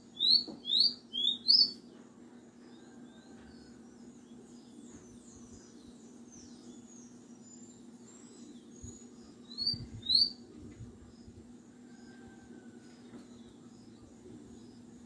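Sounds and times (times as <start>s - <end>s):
songbird chirping and whistling: 0.0s - 2.0s, 4.8s - 10.4s
low steady hum: 0.0s - 15.0s.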